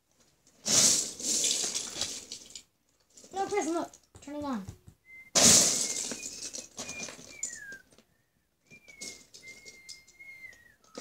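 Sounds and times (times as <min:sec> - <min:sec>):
person whistling: 0:05.0 - 0:11.0
plastic bricks clicking and rattling: 0:05.5 - 0:08.0, 0:08.7 - 0:11.0.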